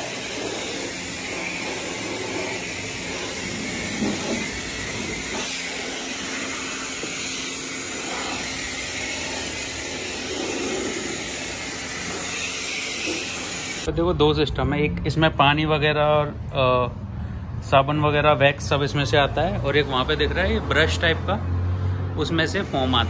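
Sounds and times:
pressure washer spraying water: 0:00.0 - 0:13.9, 0:22.4 - 0:23.0.

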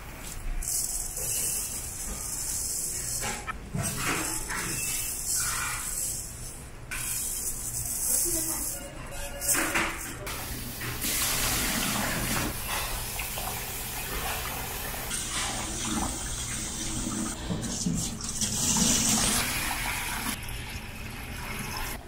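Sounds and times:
water sloshing and pouring: 0:10.9 - 0:22.0.

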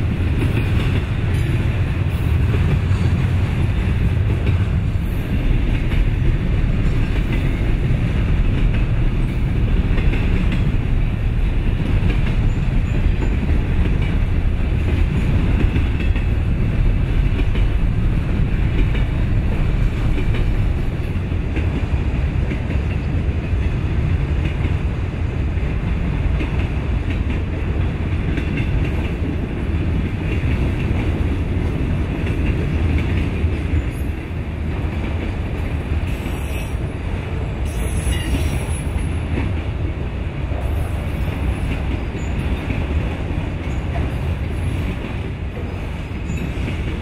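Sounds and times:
freight train passing: 0:00.0 - 0:47.0.

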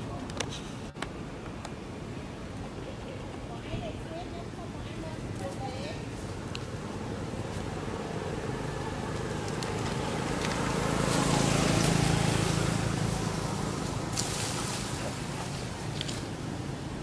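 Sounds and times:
vehicle passing by: 0:05.9 - 0:17.0.

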